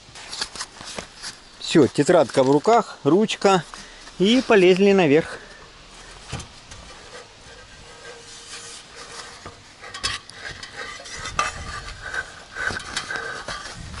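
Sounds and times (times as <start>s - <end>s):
climbing metal ladder: 5.2s - 14.0s.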